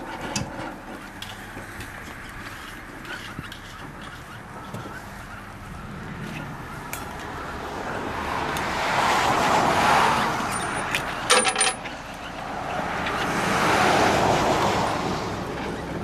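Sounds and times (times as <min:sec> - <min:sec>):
vehicles passing: 0:00.0 - 0:16.0
metallic clinks: 0:10.5 - 0:11.9.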